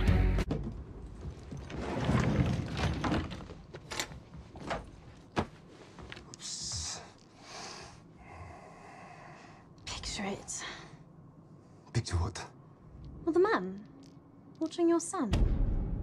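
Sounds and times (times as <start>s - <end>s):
door sliding: 1.5s - 5.0s.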